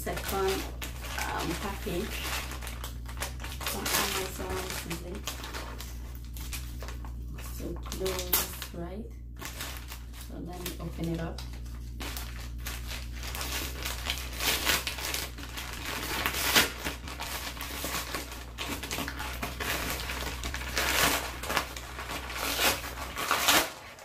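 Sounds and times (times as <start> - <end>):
paper mailer crinkling: 0.0 - 8.8, 9.4 - 24.0
scissors cutting paper: 12.0 - 24.0.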